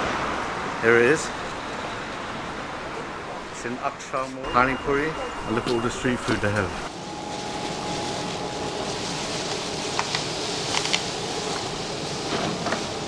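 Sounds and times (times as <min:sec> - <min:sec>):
crisp shells crackling: 0:08.8 - 0:11.8.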